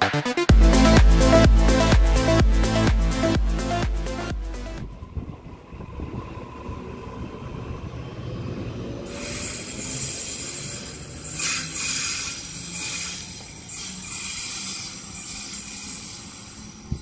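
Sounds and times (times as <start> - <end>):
electric train pulling out: 0.6 - 17.0
hiss of wheel and air noise: 9.1 - 17.0.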